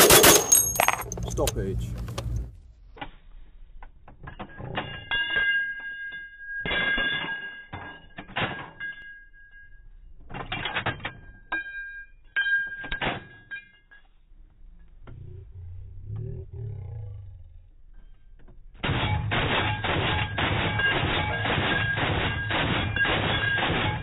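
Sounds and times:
brass cases ringing on metal: 0.0 - 1.5.

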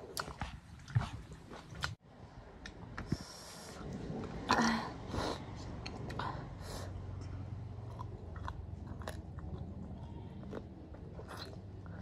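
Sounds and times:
person chewing: 7.2 - 12.0.

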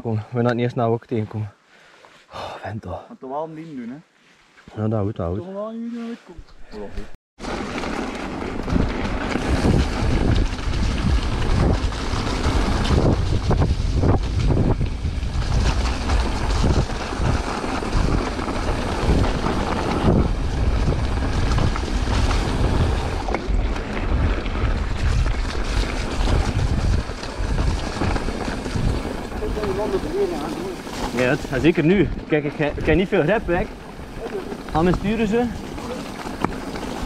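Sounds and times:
bike bumping and rattling: 7.4 - 37.0
wind on microphone: 8.5 - 37.0.

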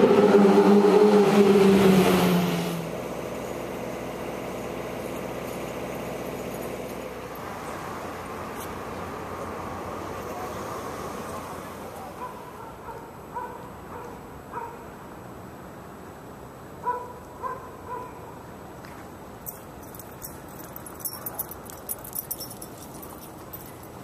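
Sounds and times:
outdoor background noise: 0.0 - 24.0
dog yipping: 12.2 - 14.8, 16.8 - 18.2.

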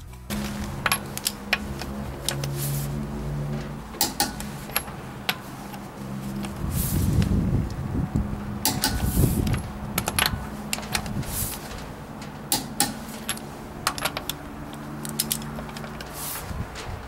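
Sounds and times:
scraping rustle: 0.0 - 7.7, 8.9 - 17.0
metal socket clicking on lug nuts: 4.0 - 5.8, 8.6 - 11.2, 12.2 - 16.1.

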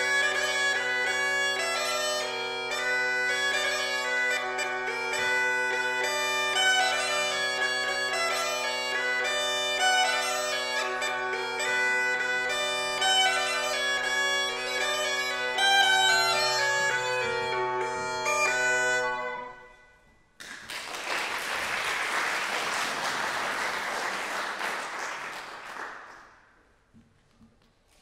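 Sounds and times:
bagpipes playing melody: 0.0 - 20.2
audience applause: 20.4 - 26.4.

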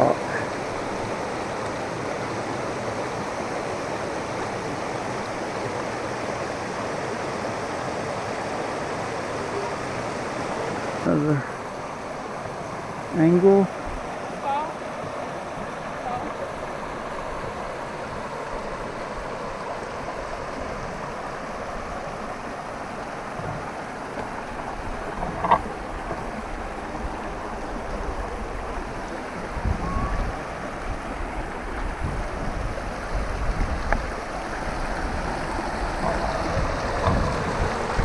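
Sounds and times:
creek running over rocks: 0.0 - 38.0
wind buffeting microphone: 24.6 - 38.0.

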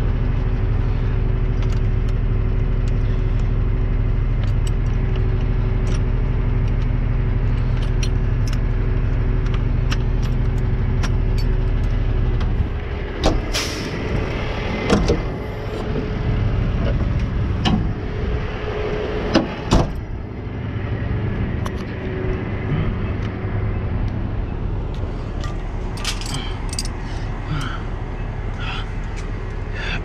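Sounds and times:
truck engine idling: 0.0 - 30.0
light clinking: 25.4 - 27.0
metallic clanks of tools: 25.4 - 27.0.

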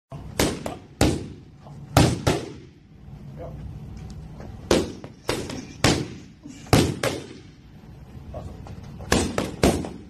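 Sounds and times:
boxing gloves smacking focus mitts: 9.0 - 10.0.

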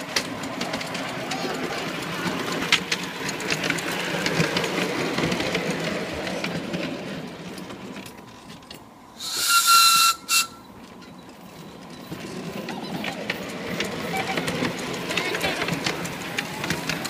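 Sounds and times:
train wheels clattering on rail joints: 0.0 - 17.0
steam locomotive whistle: 9.2 - 10.7.

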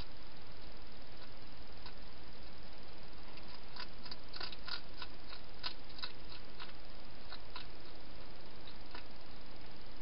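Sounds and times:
steady hiss: 0.0 - 10.0
hedgehog chewing clicks: 3.4 - 8.0, 8.6 - 9.1.

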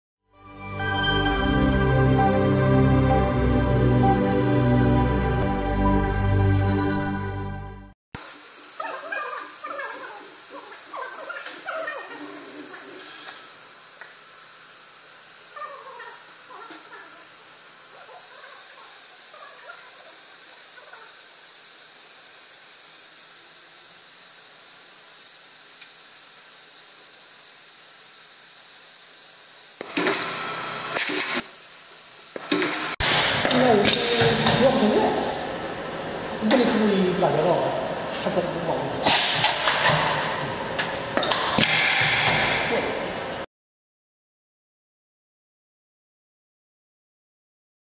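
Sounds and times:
compressed air hissing: 8.2 - 30.2.

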